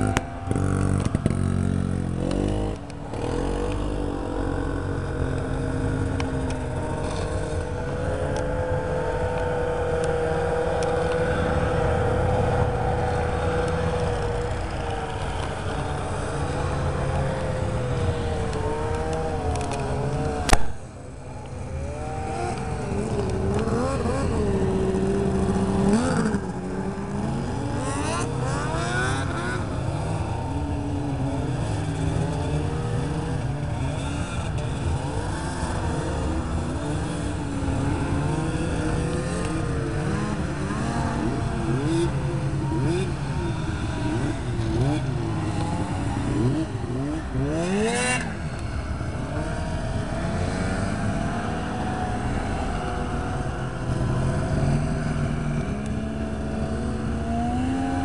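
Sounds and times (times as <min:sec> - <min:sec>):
snowmobiles driving past: 0:00.0 - 0:58.0.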